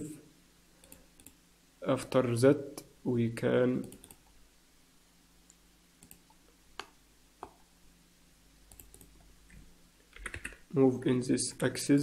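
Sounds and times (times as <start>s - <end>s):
computer mouse and key clicks: 0.8s - 1.4s, 3.8s - 4.3s, 5.5s - 7.6s, 8.7s - 10.6s.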